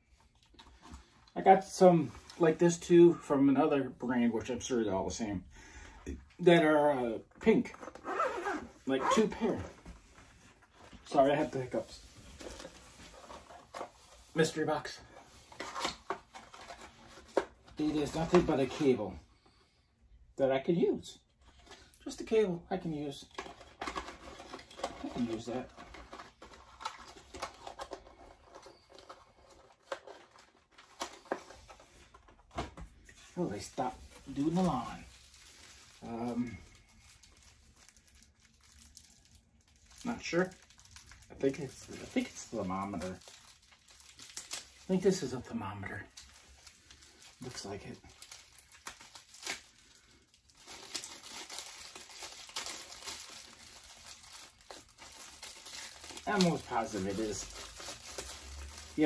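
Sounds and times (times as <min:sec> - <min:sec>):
packaging rustling: 0:07.7 - 0:19.0, 0:23.2 - 0:59.0.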